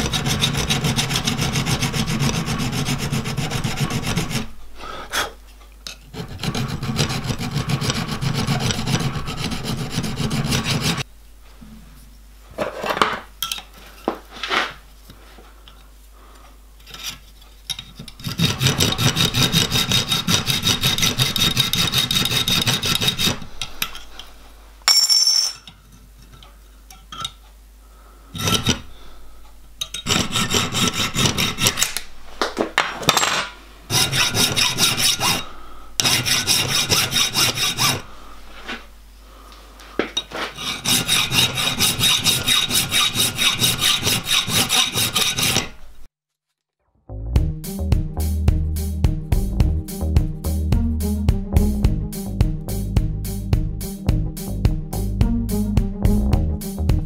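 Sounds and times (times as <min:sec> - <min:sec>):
file rasping on metal: 0:00.0 - 0:04.6, 0:06.1 - 0:11.0, 0:16.9 - 0:24.2, 0:28.4 - 0:29.0, 0:29.8 - 0:32.1, 0:33.9 - 0:38.5, 0:40.4 - 0:46.1
hacksaw cutting metal: 0:00.0 - 0:04.6, 0:06.1 - 0:11.0, 0:16.9 - 0:24.2, 0:28.4 - 0:29.0, 0:29.8 - 0:32.1, 0:33.9 - 0:38.1, 0:40.5 - 0:46.1.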